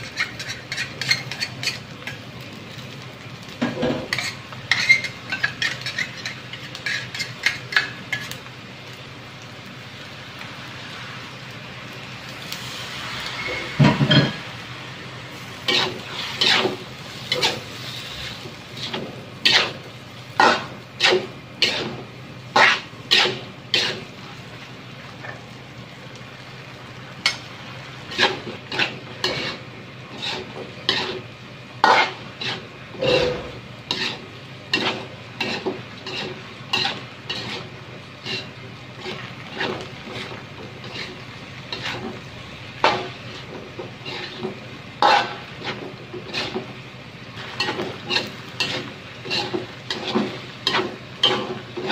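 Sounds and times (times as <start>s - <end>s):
metal spatula scraping a wok: 0.0s - 2.2s, 3.6s - 8.4s, 12.5s - 14.5s, 15.3s - 24.2s, 28.0s - 46.8s, 47.4s - 51.9s
frying sizzle: 0.0s - 51.9s.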